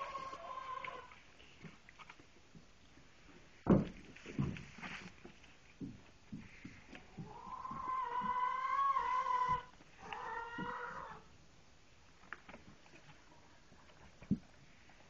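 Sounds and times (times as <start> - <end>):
animal calling: 0.0 - 1.2, 7.2 - 11.3.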